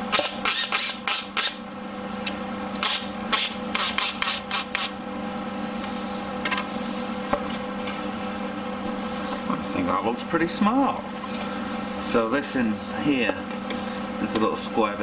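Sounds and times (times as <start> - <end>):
steady low hum: 0.0 - 15.0
drill driving screws into wood: 0.1 - 1.6.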